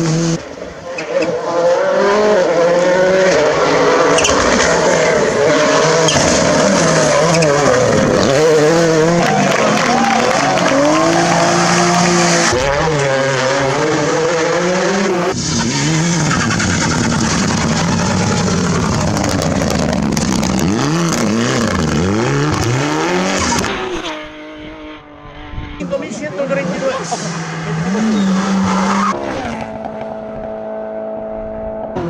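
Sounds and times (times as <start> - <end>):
rally car engines revving: 0.0 - 32.0.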